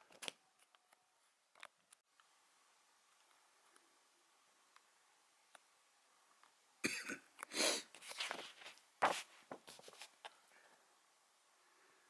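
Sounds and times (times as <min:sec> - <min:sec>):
paper pages rustling: 0:08.0 - 0:10.4.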